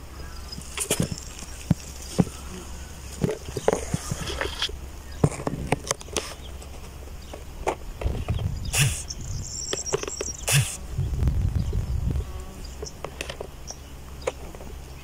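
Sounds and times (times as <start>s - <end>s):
wind rumbling on microphone: 0.0s - 15.0s
stems brushing clicks and knocks: 0.5s - 9.0s, 9.6s - 10.8s.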